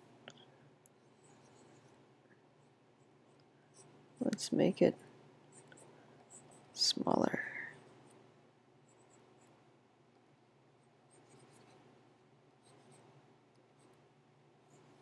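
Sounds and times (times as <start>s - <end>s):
low steady hum: 0.0s - 15.0s
stylus pen scratching tablet: 11.1s - 11.9s.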